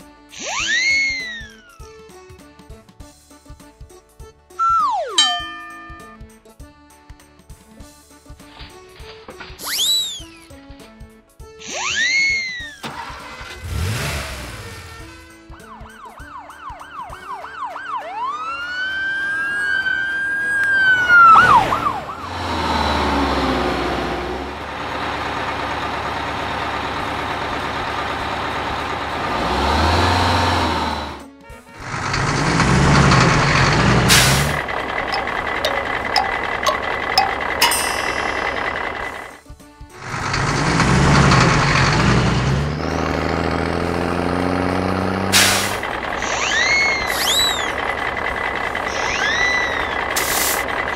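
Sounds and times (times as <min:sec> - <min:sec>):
yelping siren: 0:00.4 - 0:01.8, 0:04.6 - 0:05.3, 0:15.6 - 0:22.3, 0:48.9 - 0:50.1
rising siren wail: 0:04.6 - 0:05.4, 0:15.6 - 0:23.3
bus engine running: 0:07.4 - 0:50.9.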